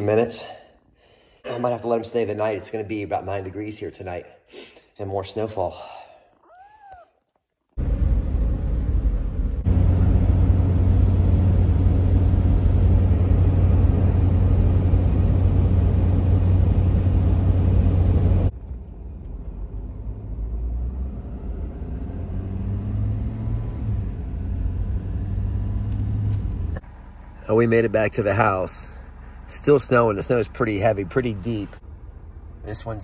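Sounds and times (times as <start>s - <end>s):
car road and engine drone: 7.8s - 33.0s.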